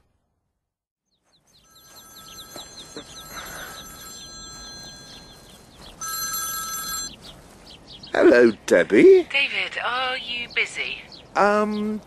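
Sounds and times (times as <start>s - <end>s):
telephone ringing: 1.7s - 7.2s.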